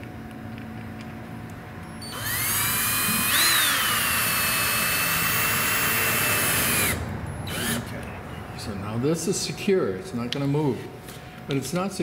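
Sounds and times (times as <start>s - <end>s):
cordless drill motor whine: 1.8s - 8.0s.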